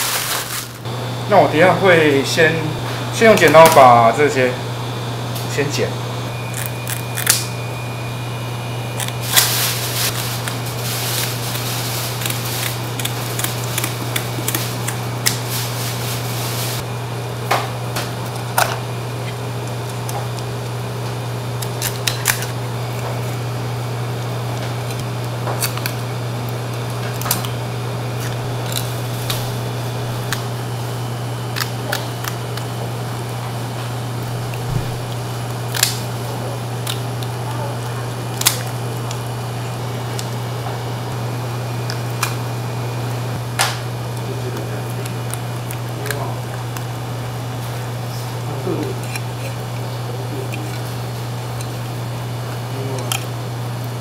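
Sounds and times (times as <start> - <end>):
scraping fish: 0.0 - 0.8, 8.8 - 16.8, 26.6 - 38.6
steady low hum: 0.0 - 54.0
scissors snipping fish: 6.4 - 7.6, 11.2 - 15.5, 48.7 - 51.9.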